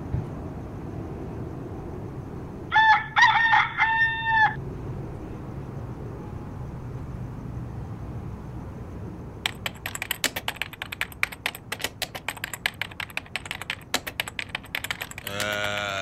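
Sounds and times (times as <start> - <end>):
keyboard typing clicks: 9.4 - 16.0
held voice-like sound: 15.2 - 16.0.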